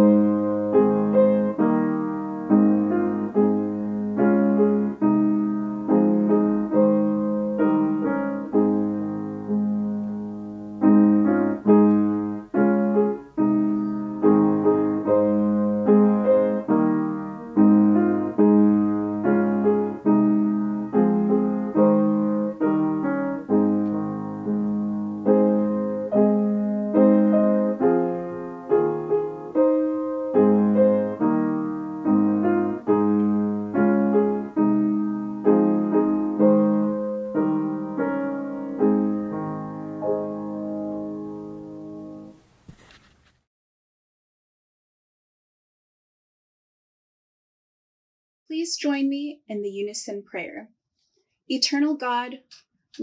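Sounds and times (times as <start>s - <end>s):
solo piano chords: 0.0s - 42.4s.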